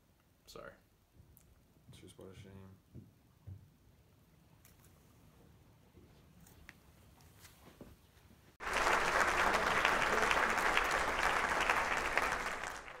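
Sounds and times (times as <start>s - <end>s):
crowd applause: 8.6s - 13.0s.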